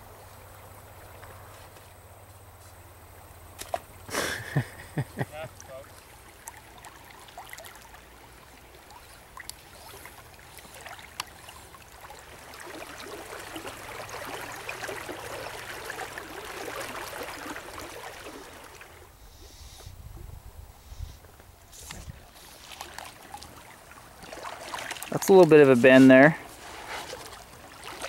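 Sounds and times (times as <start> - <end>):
creek burbling over gravel: 0.0 - 19.2, 21.3 - 28.0.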